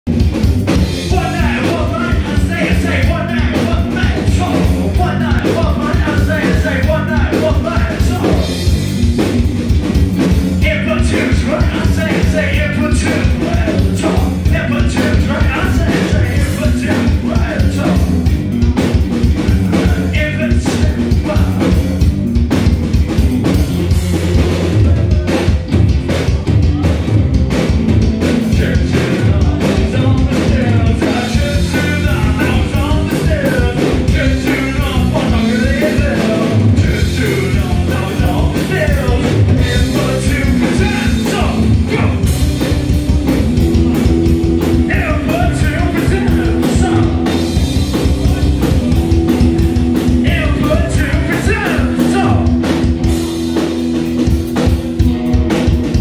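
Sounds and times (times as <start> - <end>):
live rock band playing: 0.0 - 56.0
man singing: 0.8 - 8.7, 10.5 - 22.0, 23.4 - 27.1, 28.0 - 42.9, 43.5 - 54.7.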